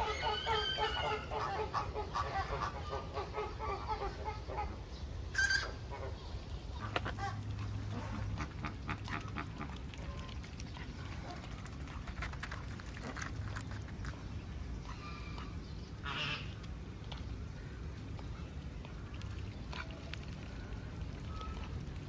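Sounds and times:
ducks quacking: 0:00.0 - 0:04.8, 0:05.4 - 0:11.4, 0:14.8 - 0:16.7.

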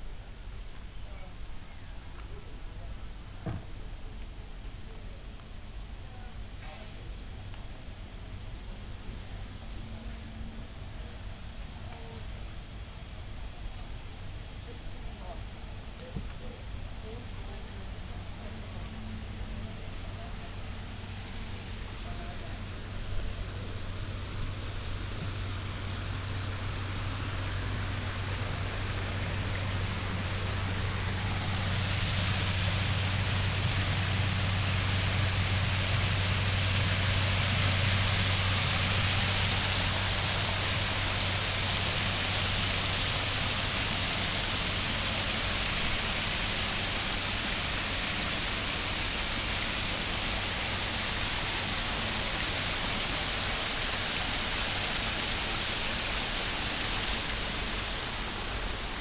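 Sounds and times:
low steady hum: 0:00.0 - 0:59.0
water rushing into pond: 0:18.0 - 0:59.0.

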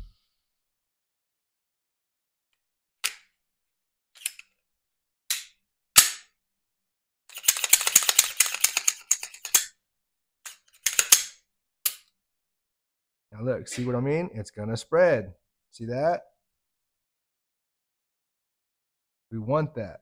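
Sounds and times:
pistol parts clicking: 0:07.3 - 0:09.8, 0:10.4 - 0:12.1
pistol slide rattling: 0:07.3 - 0:09.8, 0:10.5 - 0:12.0.

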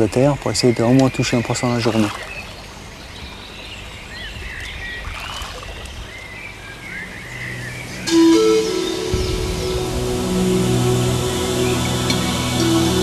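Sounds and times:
background music: 0:07.2 - 0:13.0.

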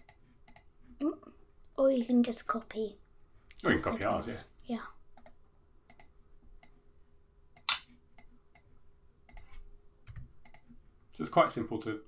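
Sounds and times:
computer mouse clicking: 0:00.0 - 0:00.7, 0:05.2 - 0:06.8, 0:07.6 - 0:10.7.

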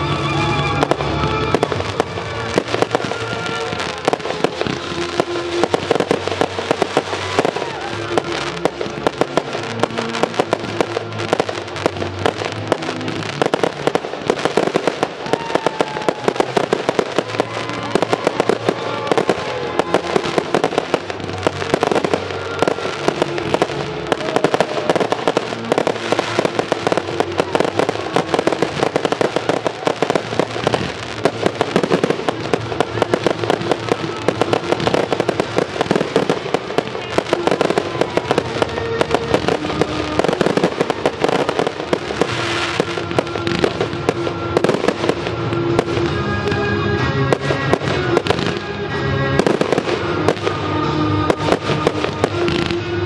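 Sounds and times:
fireworks bursting and crackling: 0:00.0 - 0:53.0
music with held tones: 0:00.0 - 0:53.0.

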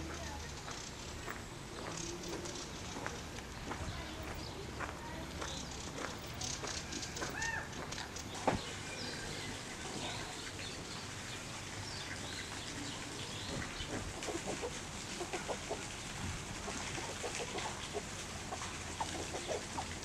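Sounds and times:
steady background hiss: 0:00.0 - 0:20.0
chickens clucking: 0:05.4 - 0:20.0.

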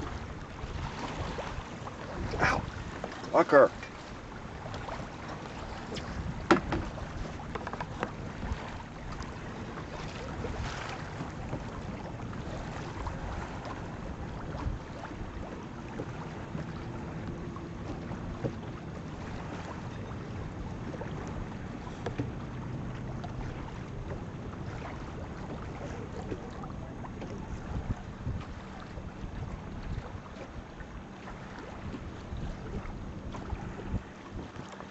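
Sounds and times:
wind noise on microphone: 0:00.0 - 0:03.0, 0:04.9 - 0:09.2, 0:10.0 - 0:16.3, 0:25.1 - 0:30.7, 0:31.7 - 0:34.6
water rushing along hull: 0:00.0 - 0:34.9.

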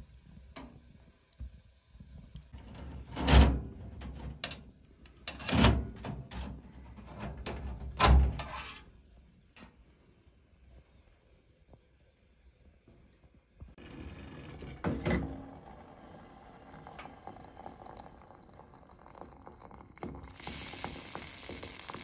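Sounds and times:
metal stove parts clunking: 0:02.6 - 0:04.6, 0:05.2 - 0:08.9.

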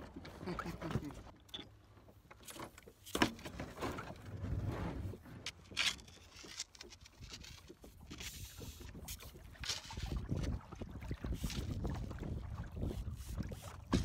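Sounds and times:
kayak paddle splashing: 0:07.2 - 0:14.0.

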